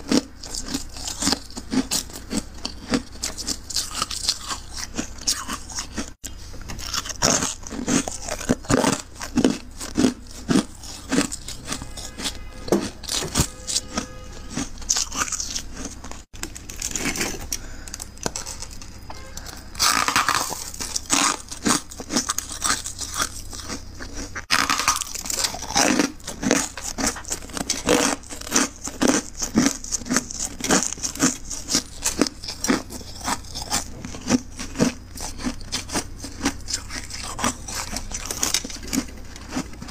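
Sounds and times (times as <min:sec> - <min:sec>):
frost and ice crunching: 0:00.0 - 0:39.9.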